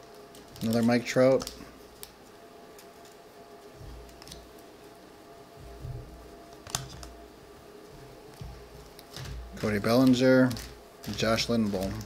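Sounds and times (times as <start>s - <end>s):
cards rustling and clicking: 0.0s - 4.7s, 6.5s - 7.2s, 8.2s - 12.0s
soft low thumps: 5.5s - 6.4s.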